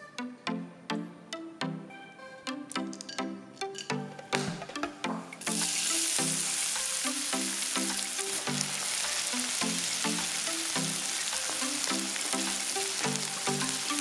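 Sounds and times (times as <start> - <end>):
onions sizzling in hot oil: 5.4 - 14.0.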